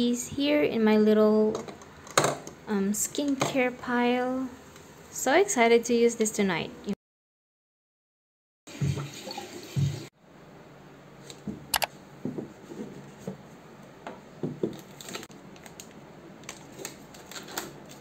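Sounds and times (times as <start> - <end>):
sharp click: 11.7 - 11.9
plastic sachets rustling: 14.8 - 18.0.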